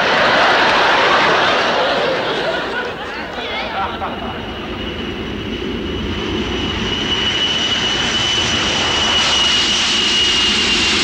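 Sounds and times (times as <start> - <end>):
jet engines roaring with whine: 0.0 - 11.0.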